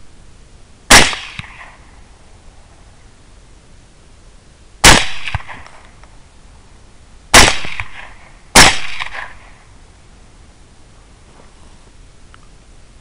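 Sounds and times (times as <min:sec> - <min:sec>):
rifle shots with echo: 0:00.9 - 0:02.0, 0:04.8 - 0:05.8, 0:07.3 - 0:09.6.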